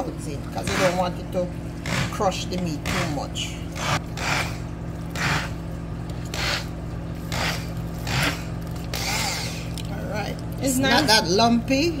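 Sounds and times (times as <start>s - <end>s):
low motor hum: 0.0s - 12.0s
immersion blender squelching in meat: 1.8s - 9.9s.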